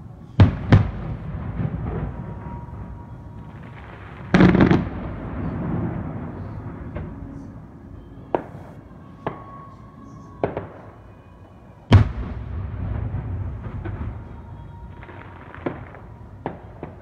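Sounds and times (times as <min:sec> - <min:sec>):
low rumble: 0:00.0 - 0:08.4.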